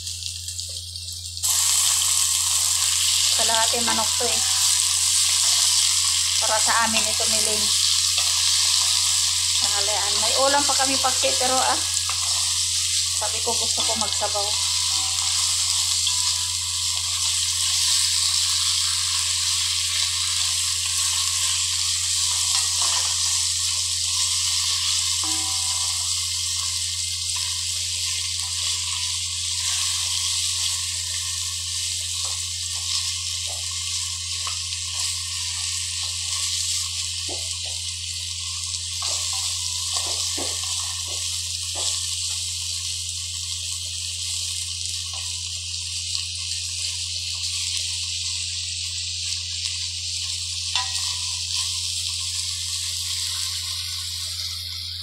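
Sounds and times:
chicken sizzling in oil: 0.0 - 55.0
low hum: 1.4 - 27.5
spatula scraping pan: 22.1 - 23.4.

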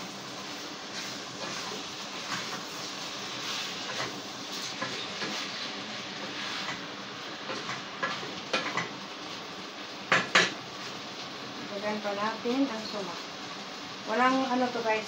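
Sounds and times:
rice and chicken sizzling: 0.0 - 15.0
wooden spoon scraping and tapping: 7.5 - 8.9.

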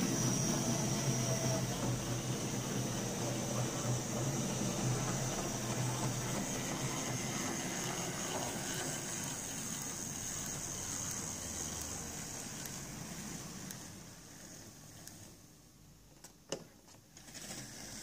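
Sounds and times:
model train motor whirring: 0.0 - 15.4
wheels rolling over rails: 17.1 - 18.0.

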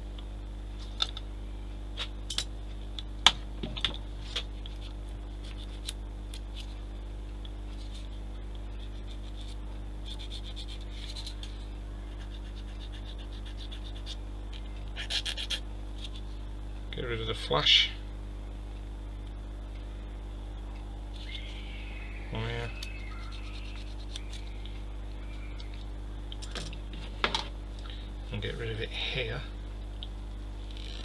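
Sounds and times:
light scratching: 22.9 - 24.5.

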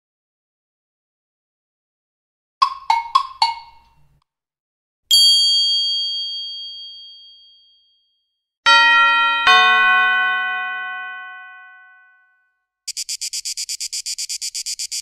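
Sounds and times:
bright bell ding: 5.1 - 8.1, 8.7 - 12.3
chime tone: 5.1 - 8.1.

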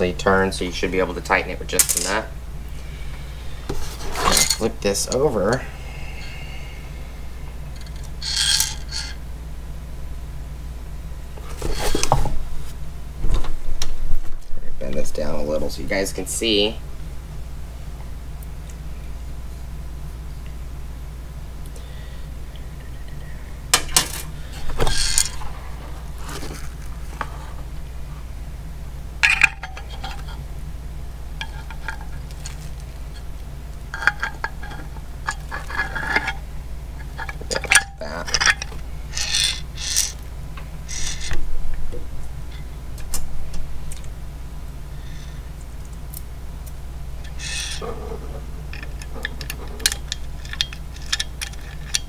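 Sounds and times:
cardboard and bubble wrap rustling: 25.4 - 27.6.

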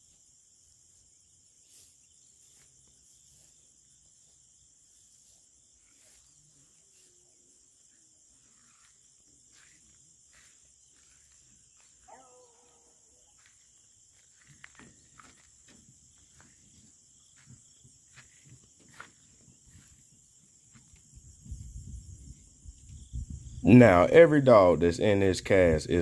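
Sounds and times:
insects chirring: 0.0 - 26.0.

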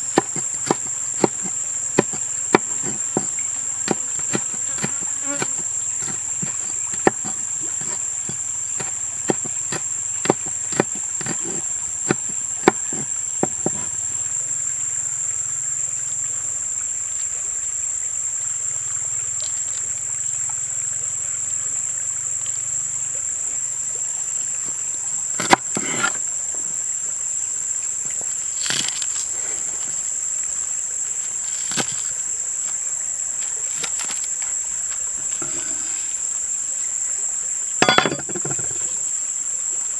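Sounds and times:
knife chopping on wooden board: 0.0 - 14.0, 25.4 - 26.2, 37.8 - 38.9
shrill insect drone: 0.0 - 39.9.

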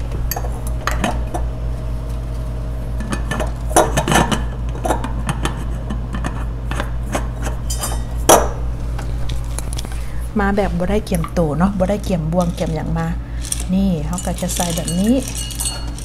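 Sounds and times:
glassware and utensils clinking: 7.6 - 8.1, 13.5 - 16.0.

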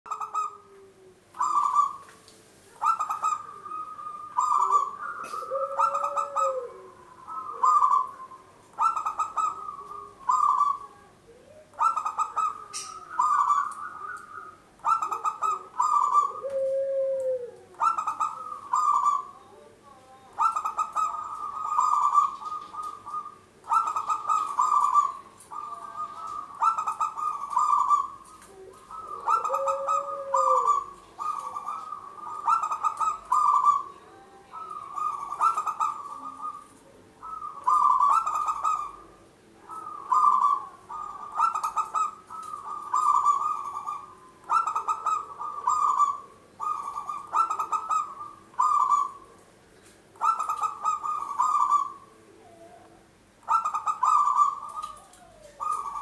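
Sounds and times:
dove cooing: 0.1 - 56.0.

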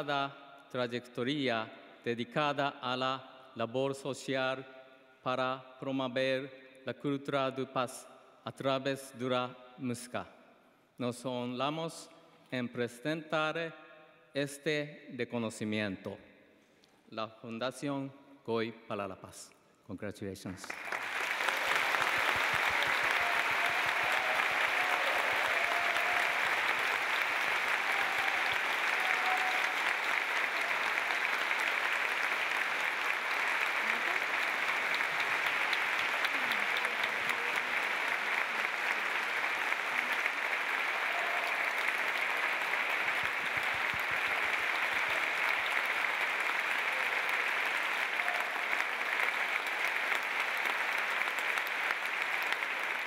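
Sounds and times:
audience applauding: 20.6 - 53.0.

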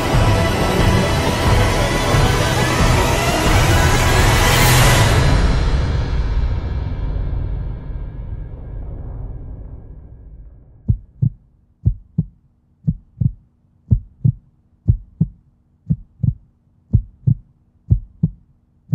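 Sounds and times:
soundtrack music: 0.0 - 10.9
heartbeat thumps: 10.8 - 18.9
faint steady hum: 10.9 - 18.9.

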